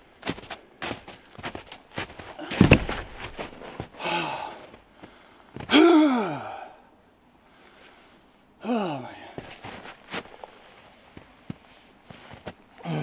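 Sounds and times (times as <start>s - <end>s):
log thudding onto snow: 0.2s - 4.0s
man breathing hard and sighing: 4.0s - 8.0s, 8.6s - 9.5s.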